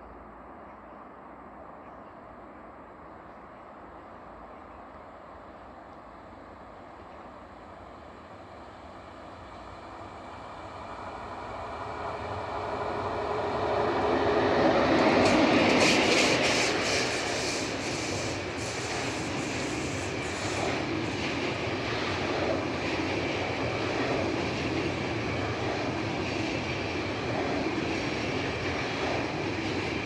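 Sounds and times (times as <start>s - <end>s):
electric locomotive rumbling past: 6.6s - 30.0s.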